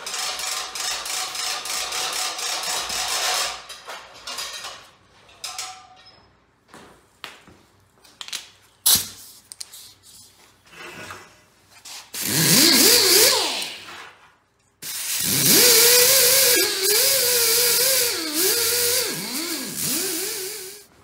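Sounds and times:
wire wheel power tool buffing: 12.2s - 13.9s, 14.8s - 20.9s
parts clicking and knocking: 12.2s - 20.9s.

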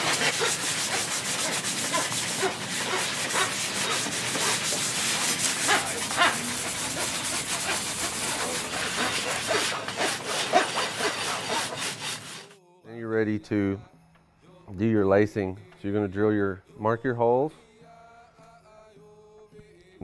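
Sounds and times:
rasp scraping wood: 0.0s - 12.6s.

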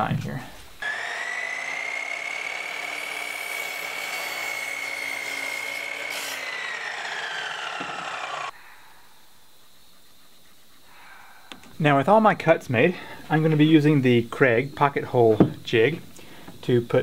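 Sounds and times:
saw blade crosscutting board: 0.8s - 8.5s
miter saw motor whine: 0.8s - 8.6s.

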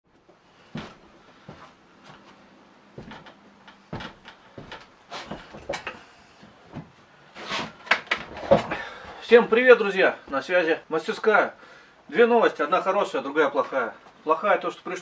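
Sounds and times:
knocks and clicks of handling: 3.0s - 6.0s, 7.8s - 8.8s.

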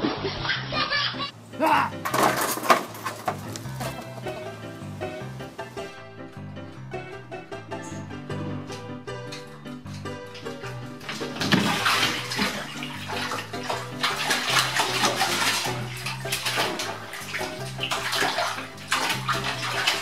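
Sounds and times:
cat splashing in bathtub water: 9.4s - 20.0s.

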